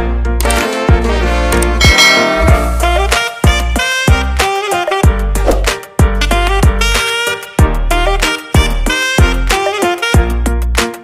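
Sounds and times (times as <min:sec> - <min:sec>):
upbeat instrumental music: 0:00.0 - 0:11.0
heavy bass beat: 0:01.8 - 0:07.0.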